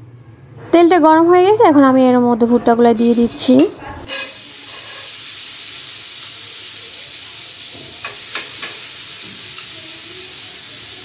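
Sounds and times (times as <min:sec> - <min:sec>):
popcorn kernels sizzling in oil: 0:03.0 - 0:11.0.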